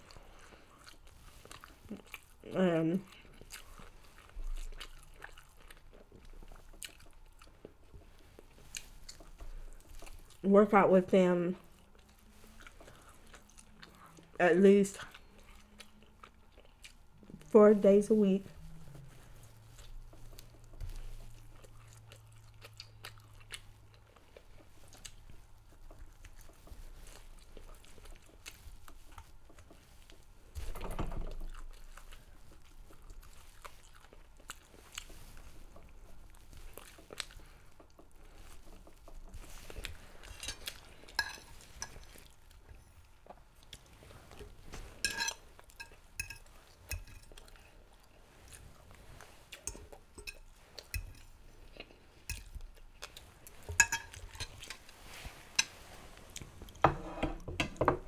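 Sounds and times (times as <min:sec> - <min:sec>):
chewing chicken wings: 0:00.0 - 0:10.4, 0:11.5 - 0:17.6, 0:18.5 - 0:30.4, 0:31.4 - 0:44.6
fork clinking and scraping plate: 0:40.3 - 0:42.1, 0:45.0 - 0:47.4, 0:53.7 - 0:54.8.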